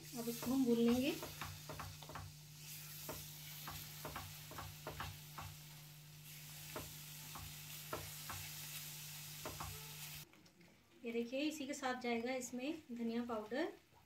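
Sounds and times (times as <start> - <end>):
paste sizzling in oil: 0.0 - 10.3
spatula scraping and tapping pan: 0.2 - 5.6, 6.5 - 10.2.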